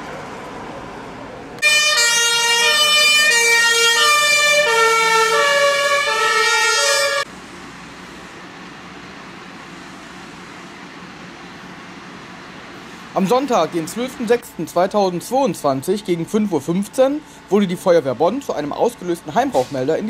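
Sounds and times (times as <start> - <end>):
traffic noise: 0.0 - 20.0
two-tone fire engine siren: 1.6 - 7.3.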